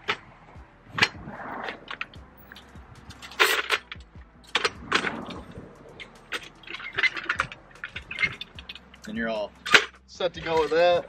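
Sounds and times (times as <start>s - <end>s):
metal cart frame clanking: 0.0s - 11.0s.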